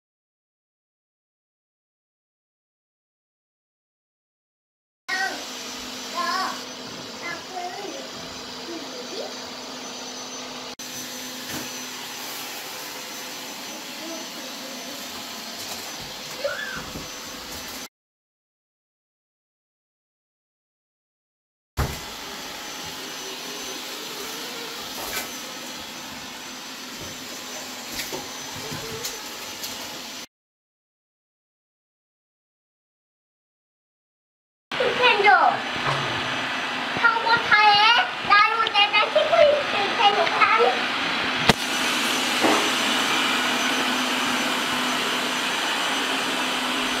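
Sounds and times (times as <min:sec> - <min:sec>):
robot vacuum running: 0:05.1 - 0:17.9, 0:21.8 - 0:30.3, 0:34.8 - 0:47.0.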